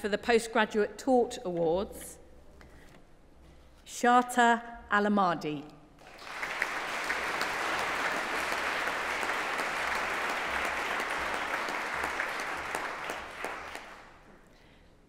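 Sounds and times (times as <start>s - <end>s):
audience applauding: 6.0s - 14.3s.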